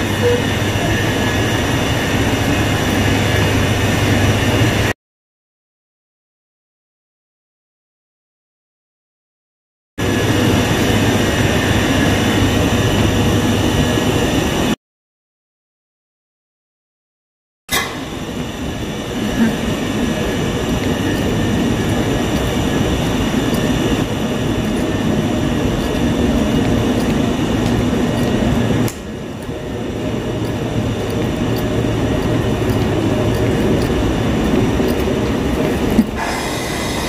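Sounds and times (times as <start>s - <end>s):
high whining train tones: 0.0s - 4.9s, 10.0s - 14.8s, 17.7s - 37.0s
passenger train rumbling: 0.0s - 4.9s, 10.0s - 14.8s, 17.7s - 37.0s.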